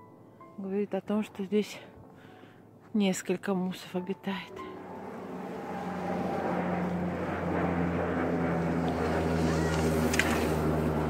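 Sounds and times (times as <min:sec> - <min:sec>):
engine drone: 0:04.3 - 0:11.0.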